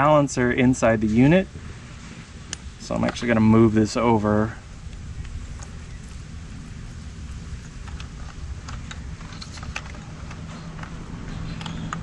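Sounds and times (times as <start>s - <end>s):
low steady hum: 0.0s - 12.0s
plastic connectors clicking and rattling: 7.7s - 12.0s.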